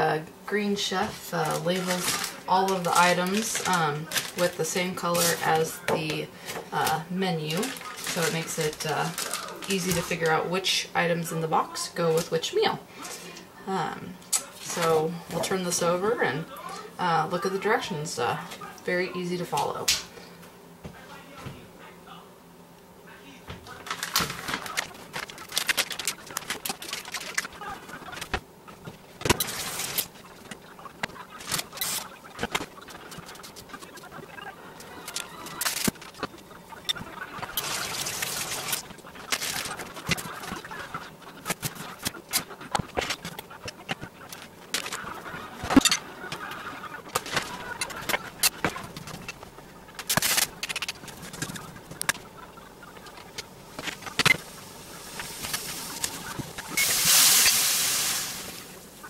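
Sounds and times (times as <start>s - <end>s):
skillet sizzling: 0.0s - 10.6s, 24.2s - 59.0s
packaging rustling and crinkling: 1.0s - 10.4s, 23.6s - 34.0s, 35.0s - 36.5s, 37.4s - 40.7s, 47.1s - 52.2s.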